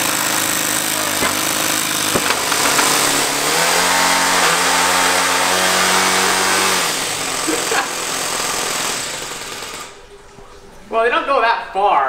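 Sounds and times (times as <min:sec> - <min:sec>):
model engine running: 0:00.0 - 0:10.1.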